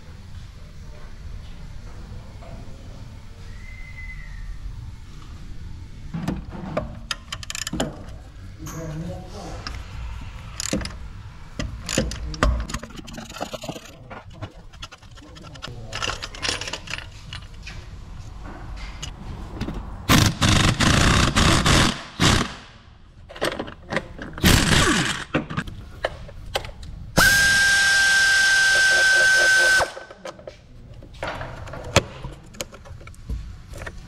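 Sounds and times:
ratchet and metal scraping: 0:07.1 - 0:08.9, 0:11.6 - 0:17.7
power drill whine: 0:27.2 - 0:30.1.

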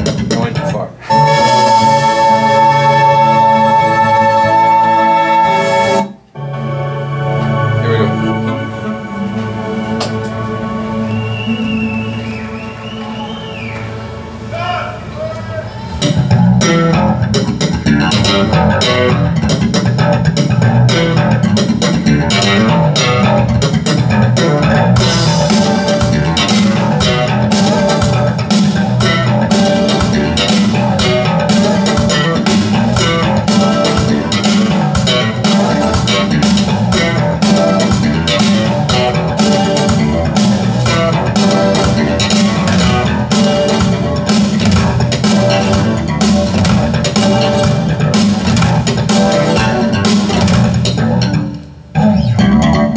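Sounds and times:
rock band music over loudspeakers: 0:00.0 - 0:14.5, 0:15.9 - 0:52.9
drum and cymbal hits: 0:16.0 - 0:51.5.

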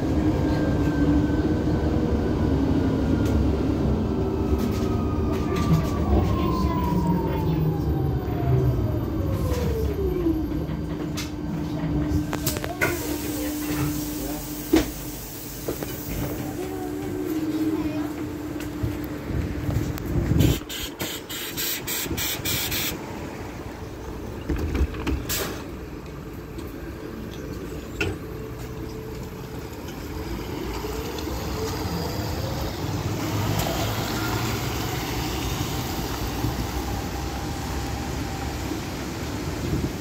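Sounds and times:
street traffic: 0:00.0 - 0:40.0
air hiss: 0:20.4 - 0:23.0.

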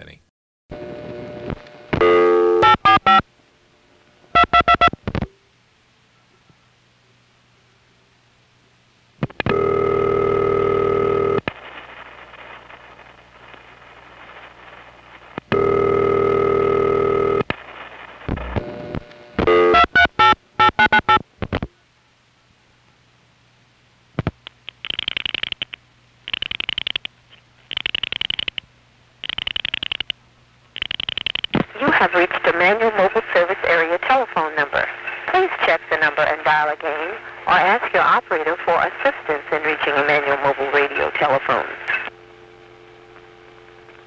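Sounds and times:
telephone line hiss: 0:00.7 - 0:03.3, 0:04.3 - 0:05.0, 0:09.4 - 0:21.2, 0:29.2 - 0:30.2, 0:30.8 - 0:44.0
buzzy telephone ringback tone: 0:02.0 - 0:03.2, 0:04.4 - 0:04.9, 0:09.5 - 0:11.4, 0:15.5 - 0:17.5, 0:18.4 - 0:21.2.

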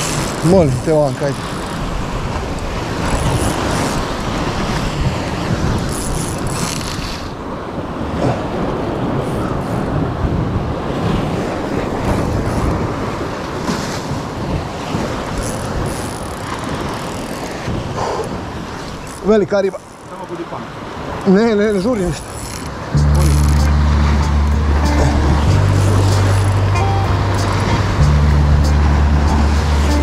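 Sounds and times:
wind on microphone: 0:00.0 - 0:19.2, 0:22.1 - 0:30.0
sea surf washing against rocks: 0:00.0 - 0:26.8.

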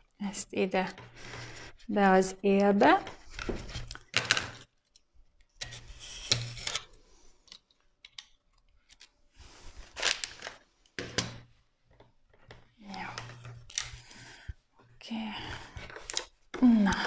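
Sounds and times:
vinyl film rustling: 0:08.7 - 0:10.9.

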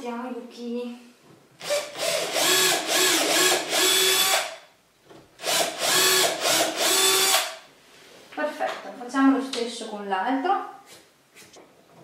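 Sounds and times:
cordless drill whirring into wood: 0:01.6 - 0:04.6, 0:05.4 - 0:07.6.

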